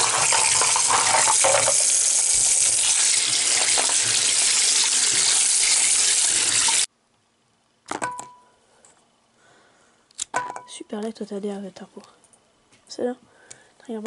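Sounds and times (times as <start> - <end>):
tap water running into metal bowl: 0.0 - 6.9.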